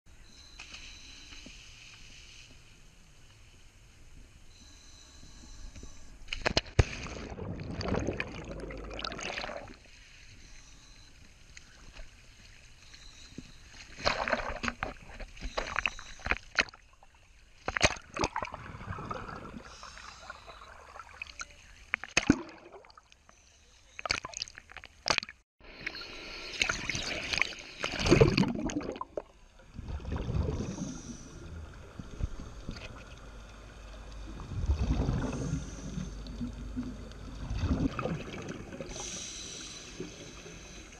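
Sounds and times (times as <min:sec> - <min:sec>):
water sloshing and splashing: 0:06.3 - 0:10.4, 0:11.0 - 0:23.3, 0:26.6 - 0:39.1.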